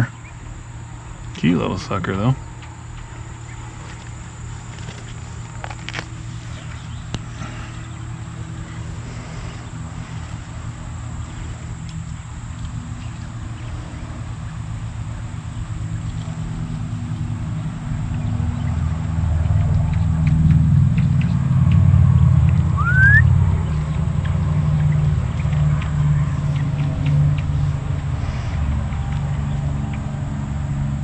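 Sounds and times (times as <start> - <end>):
high insect drone: 0.0 - 31.0
low engine hum: 0.0 - 31.0.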